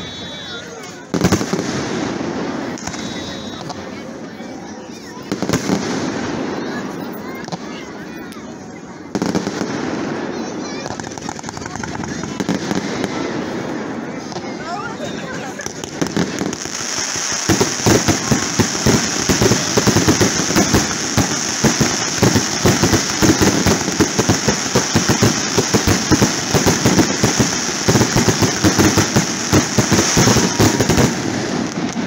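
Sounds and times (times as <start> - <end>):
fireworks bangs: 0.0 - 32.0
high-pitched crackling hiss: 15.7 - 32.0.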